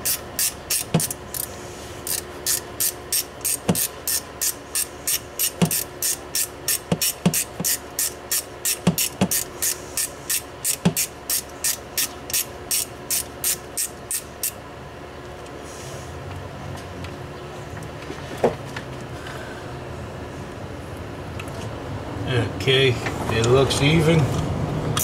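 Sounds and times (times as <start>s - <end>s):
socket ratchet clicking: 2.1s - 14.6s.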